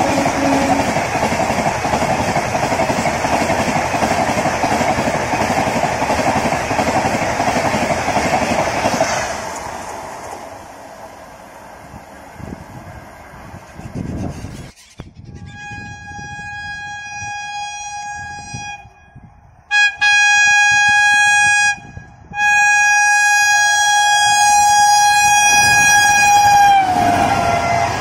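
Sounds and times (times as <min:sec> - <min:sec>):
locomotive horn blasts: 0:00.0 - 0:00.9, 0:15.3 - 0:28.0.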